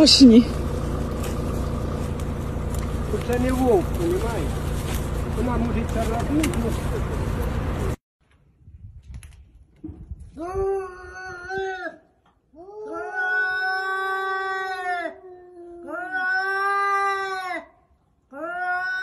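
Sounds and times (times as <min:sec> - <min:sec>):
cat yowling: 0:12.7 - 0:17.7, 0:18.3 - 0:19.0.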